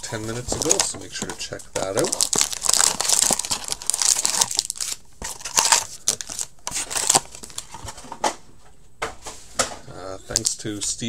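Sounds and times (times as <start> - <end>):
foil packs crinkling: 0.0 - 0.9, 1.5 - 8.2.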